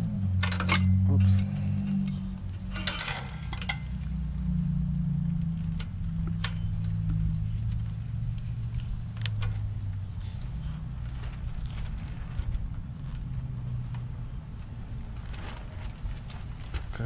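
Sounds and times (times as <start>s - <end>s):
steady low hum: 0.0s - 17.0s
roller chain metal clinks: 0.4s - 4.2s.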